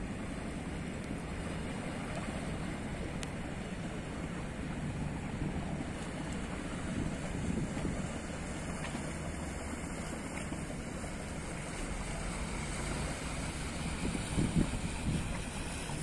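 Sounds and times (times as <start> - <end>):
boat engine droning: 0.0 - 16.0
water lapping: 0.0 - 16.0
wind buffeting microphone: 1.3 - 16.0.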